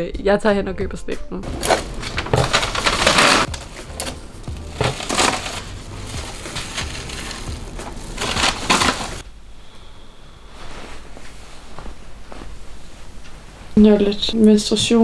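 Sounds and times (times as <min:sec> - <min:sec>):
paper bag crinkling: 0:01.4 - 0:09.2.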